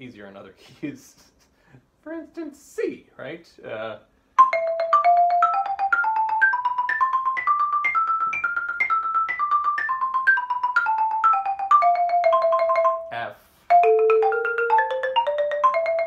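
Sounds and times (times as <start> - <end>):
xylophone playing a scale: 4.4 - 16.0.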